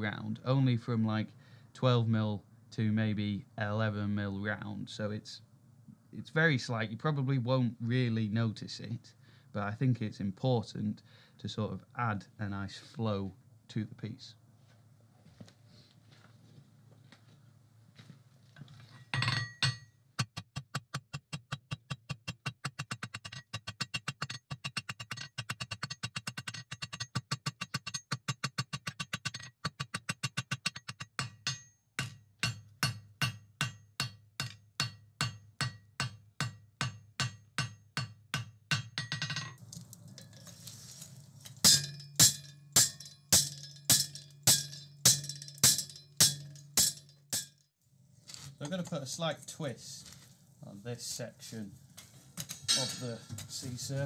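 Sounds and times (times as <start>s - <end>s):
hammer striking steel on anvil: 30.3s - 39.6s, 41.6s - 47.6s, 52.4s - 53.6s.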